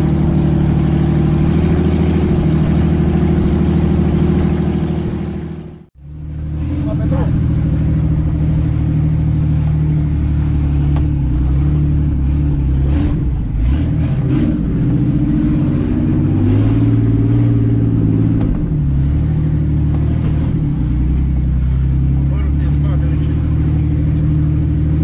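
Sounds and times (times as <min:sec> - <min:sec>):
off-road vehicle engine revving: 0:00.0 - 0:25.0
short knocks: 0:18.2 - 0:18.8.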